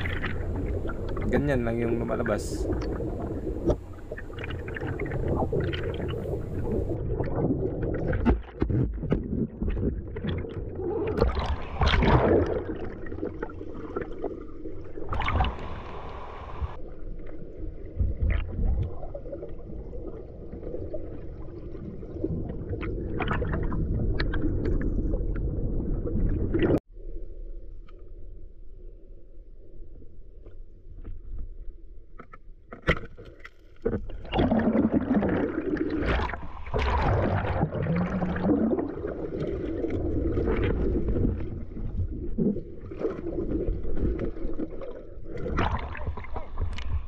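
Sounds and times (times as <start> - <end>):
underwater murmur: 0.0 - 7.3
water sloshing and gurgling: 0.0 - 26.9, 29.6 - 47.0.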